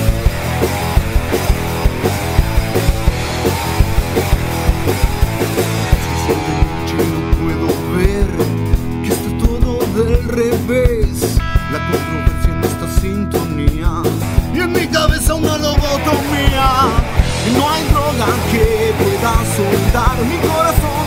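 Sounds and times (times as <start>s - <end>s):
drum kit beat: 0.0s - 21.0s
electric guitar: 0.0s - 21.0s.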